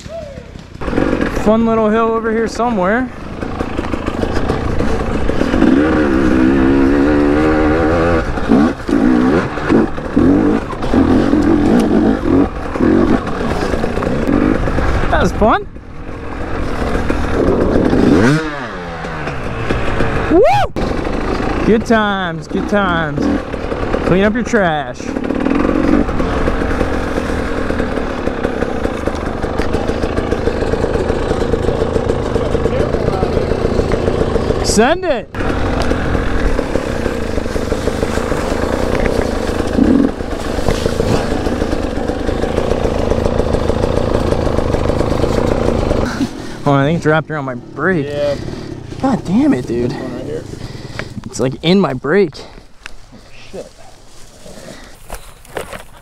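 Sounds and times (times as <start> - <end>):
two-stroke motorbike engine revving: 0.0 - 53.7.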